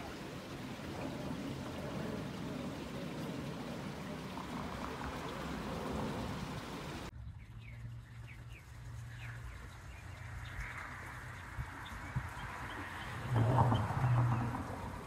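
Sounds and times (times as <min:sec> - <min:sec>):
steady rushing hiss: 0:00.0 - 0:07.1
small birds chirping: 0:06.5 - 0:13.3.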